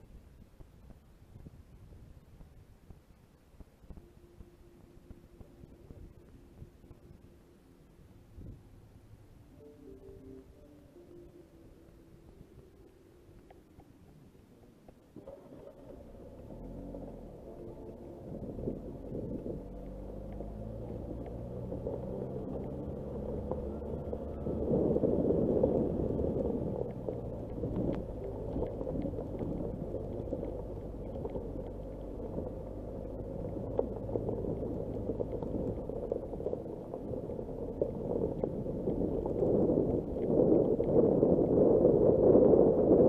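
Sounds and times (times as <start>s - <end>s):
car engine running: 14.5s - 42.2s
tyres crunching over gravel: 15.2s - 41.8s.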